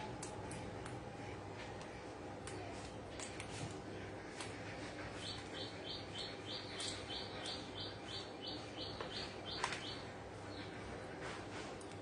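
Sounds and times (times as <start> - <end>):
parakeet chirping: 5.2 - 10.6.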